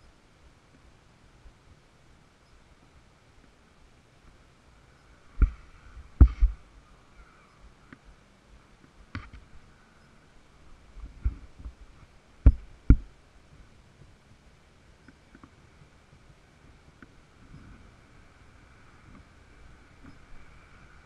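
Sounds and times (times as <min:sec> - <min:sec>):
faint steady hum: 0:00.0 - 0:21.0
dull thumps and knocks: 0:06.2 - 0:06.6, 0:12.4 - 0:13.1.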